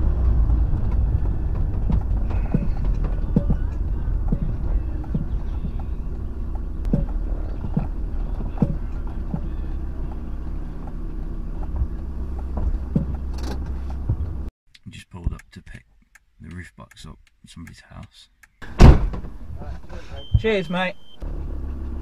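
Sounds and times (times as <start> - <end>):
van engine and road rumble: 0.0 - 14.5, 18.6 - 22.0
knocks and thumps: 0.2 - 10.2, 11.6 - 14.5.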